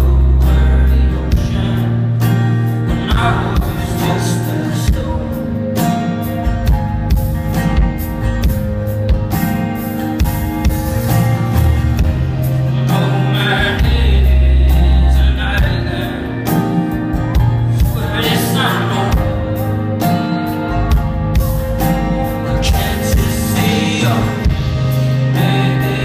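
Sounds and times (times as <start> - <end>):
deep sustained bass notes: 0.0 - 5.8, 10.8 - 26.0
man singing: 0.0 - 6.3, 12.4 - 21.0, 21.8 - 26.0
acoustic guitar: 0.0 - 26.0.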